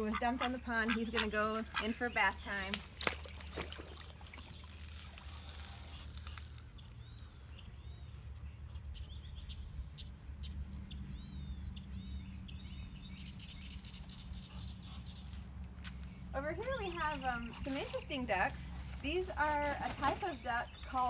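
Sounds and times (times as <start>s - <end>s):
songbird chirping: 0.0s - 21.0s
faint water splashing: 0.1s - 6.7s
low steady rumble: 3.8s - 21.0s.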